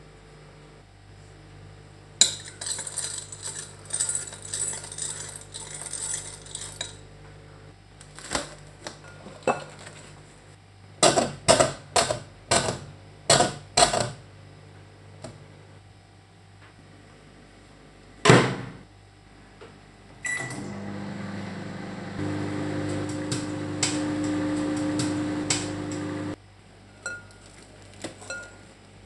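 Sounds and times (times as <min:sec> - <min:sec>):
spoon stirring kernels in glass bowl: 0:02.2 - 0:07.0.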